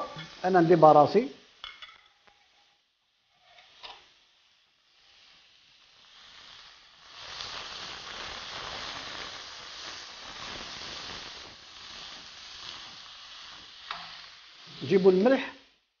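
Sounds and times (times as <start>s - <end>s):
meat sizzling in oil: 0.0s - 16.0s
wooden spatula in pan: 13.8s - 14.2s.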